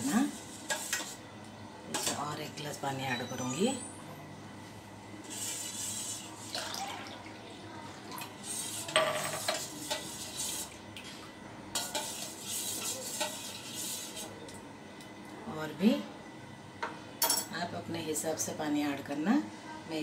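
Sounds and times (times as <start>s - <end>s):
metal spoon scraping steel bowl: 8.5s - 10.6s, 11.8s - 14.3s.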